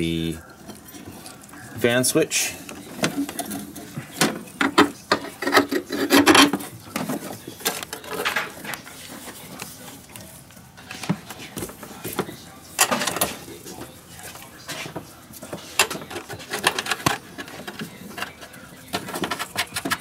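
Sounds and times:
metal bracket rubbing and scraping: 2.8 - 8.6, 15.6 - 20.0.

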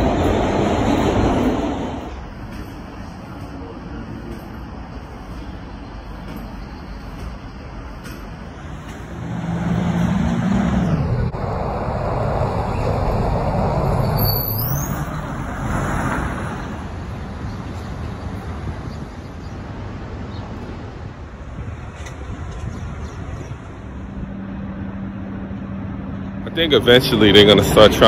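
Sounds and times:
city bus running: 0.0 - 28.0
street traffic noise: 0.0 - 28.0
brief high squeal: 14.1 - 15.1.

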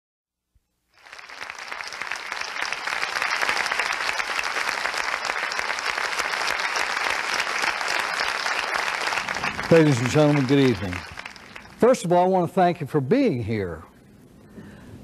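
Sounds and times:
audience applauding: 1.0 - 12.1.

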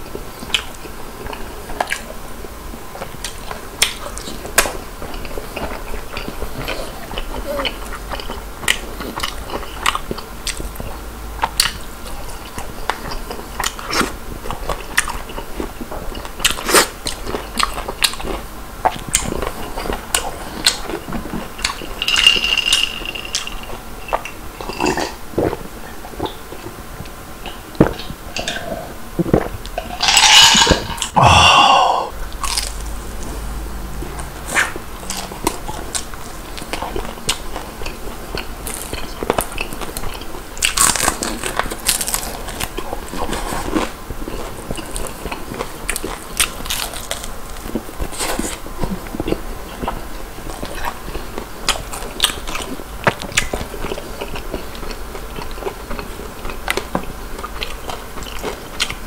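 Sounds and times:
chewing and crunching crispy food: 0.0 - 31.5, 32.3 - 59.0
loud noisy sound: 29.8 - 34.4.

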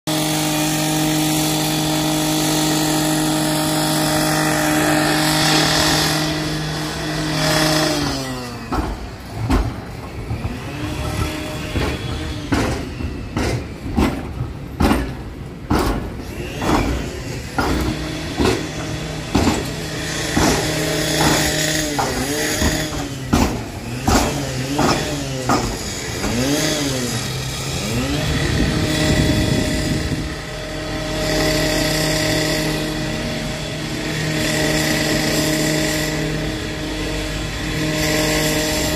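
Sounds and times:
tram engine hum: 0.1 - 38.9
tram clunks and knocks: 7.6 - 26.4.

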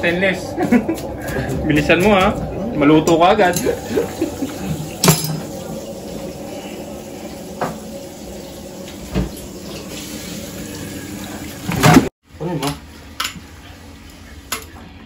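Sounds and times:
cookware knocking and clanking: 5.0 - 5.5.

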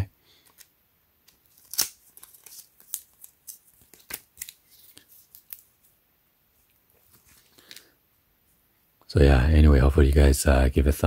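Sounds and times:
booklet pages flipping: 0.4 - 6.0, 6.6 - 7.9.

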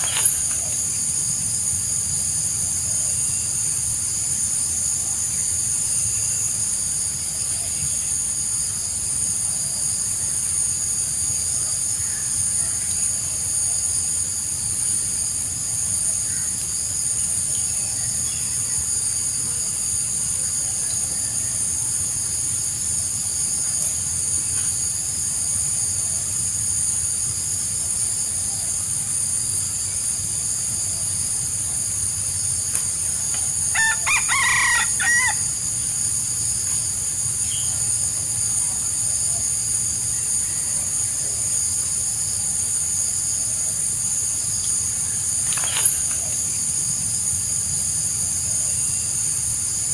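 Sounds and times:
high-pitched hiss: 0.0 - 49.9
rooster crowing: 33.6 - 35.6.

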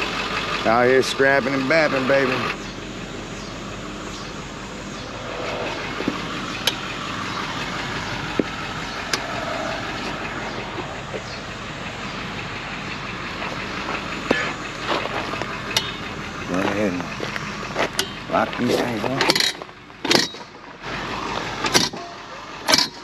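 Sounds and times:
tow truck rattling: 0.0 - 23.0
sharp metallic clanks: 4.2 - 11.4, 13.5 - 16.2, 17.9 - 20.6, 21.6 - 23.0.

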